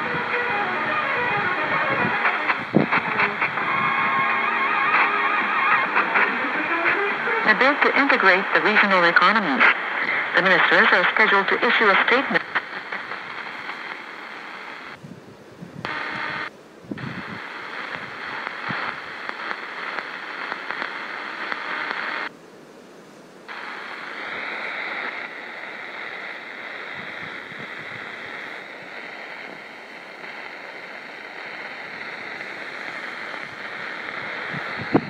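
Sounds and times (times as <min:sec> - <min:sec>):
radio static and hiss: 0:00.0 - 0:22.4, 0:23.4 - 0:35.0.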